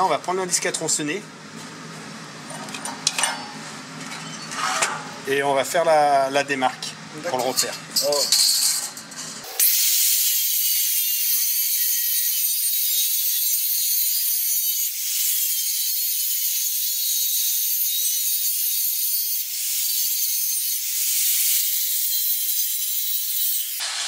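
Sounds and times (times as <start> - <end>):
angle grinder cutting steel: 9.4 - 24.0.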